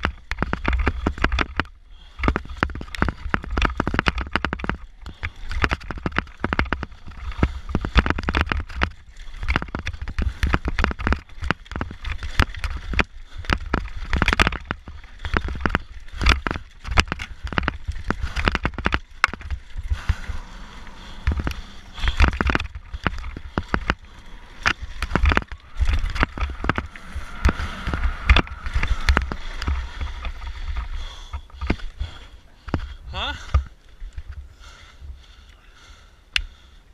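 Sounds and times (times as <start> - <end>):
bicycle rattling and knocking: 0.0 - 35.2
wind buffeting microphone: 16.9 - 35.2.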